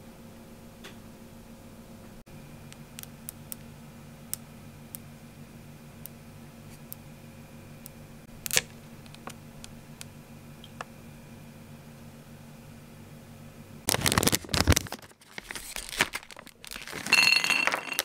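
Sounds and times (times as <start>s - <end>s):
steady low hum: 0.0s - 16.8s
plastic pouch crinkling: 13.9s - 17.8s.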